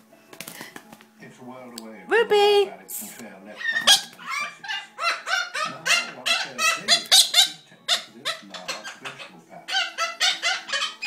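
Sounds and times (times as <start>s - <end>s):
cockatoo squawking calls: 3.5s - 11.0s.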